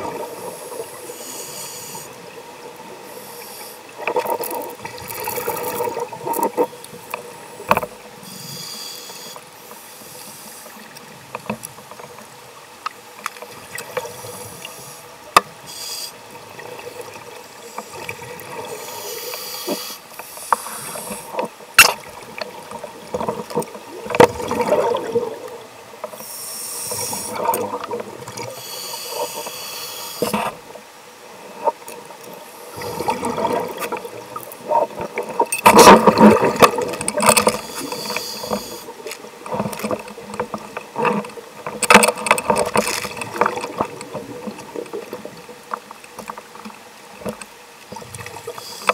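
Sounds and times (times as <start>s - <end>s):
underwater bubbling exhalations: 23.9s - 25.6s, 32.7s - 39.9s.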